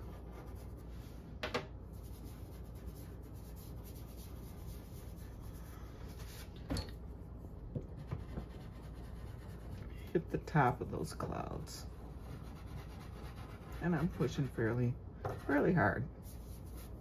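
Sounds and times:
pastel rubbing on paper: 0.0 - 1.2, 1.9 - 6.5, 8.0 - 9.8, 12.0 - 14.6, 15.4 - 17.0.

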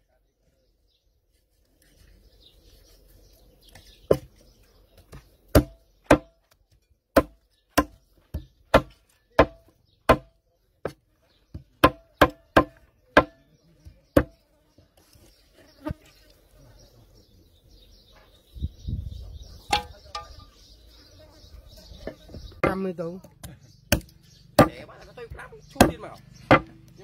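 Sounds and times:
cleaver chopping meat: 4.1 - 4.4, 5.0 - 6.4, 7.1 - 14.4, 23.4 - 26.9.

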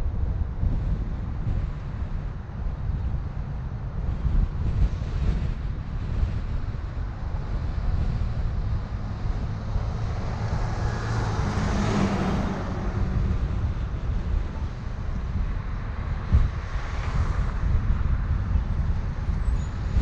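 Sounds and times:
car road and wind rumble: 0.0 - 20.0
passing vehicle whoosh: 4.0 - 20.0.

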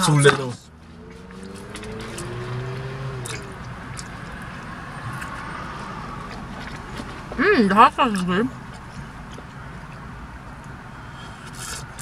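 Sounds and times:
biting and chewing food: 1.0 - 7.4.

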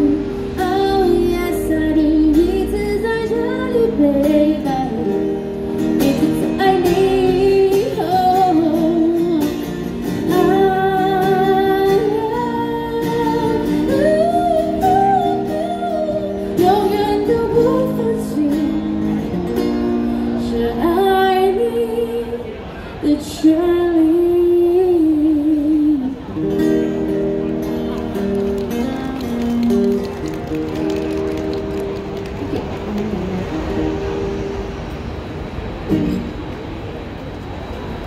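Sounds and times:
woman singing a pop ballad: 0.0 - 9.6, 10.3 - 18.9, 20.4 - 22.4, 23.1 - 26.2
acoustic guitar: 0.0 - 38.0.

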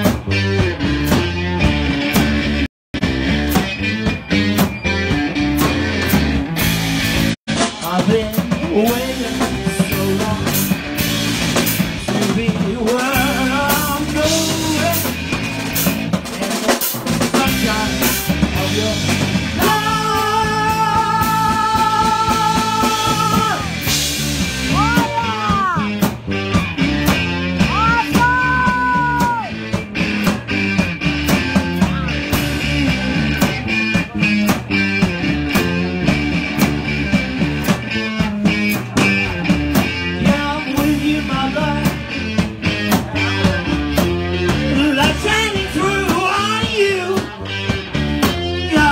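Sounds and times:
drum kit: 0.0 - 48.9
electric guitar: 0.0 - 48.9
man singing: 7.6 - 11.0, 11.8 - 15.2, 17.2 - 23.9, 24.6 - 26.0, 27.6 - 29.6, 38.0 - 48.9.

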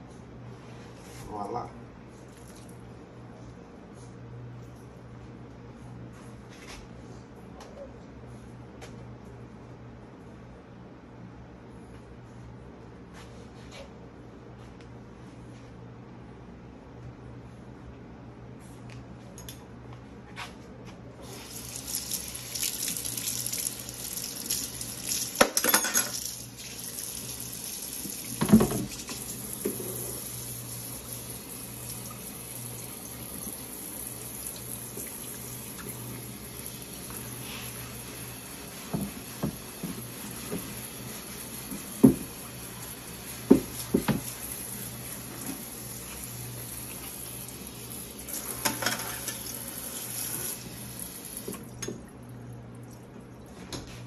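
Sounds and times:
faucet running water: 21.2 - 52.1
dishes clinking against sink: 25.4 - 26.2.

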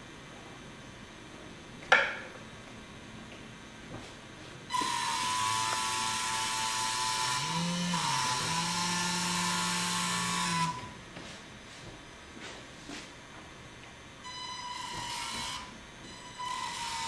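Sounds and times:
electric propeller motors whining: 4.7 - 11.0, 14.2 - 17.0.

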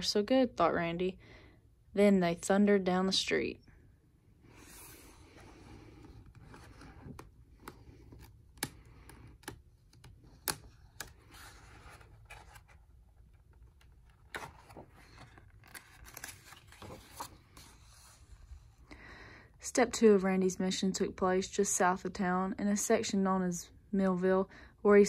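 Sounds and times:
book pages rustling: 4.5 - 18.7.

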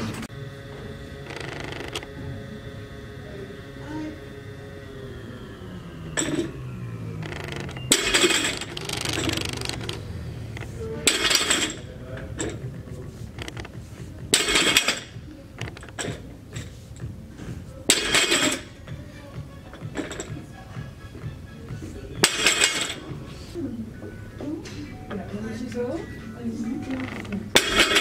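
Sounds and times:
barbell plates clanking on floor: 7.2 - 10.0, 11.0 - 12.7, 14.3 - 16.7, 27.5 - 28.0.

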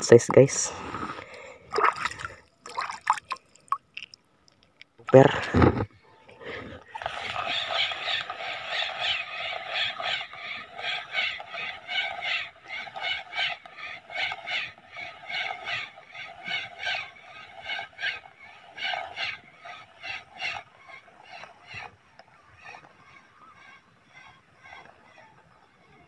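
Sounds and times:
fishing reel whirring: 6.9 - 25.0.

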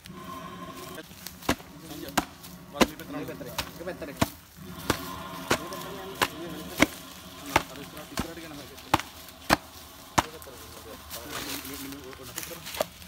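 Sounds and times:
sharp chopping blows: 1.4 - 3.0, 3.6 - 10.4.

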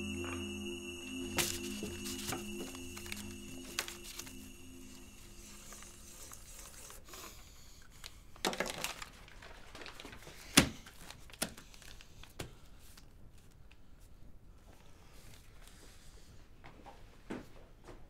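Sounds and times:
paper and cloth rustling: 1.4 - 7.3, 8.4 - 13.6.

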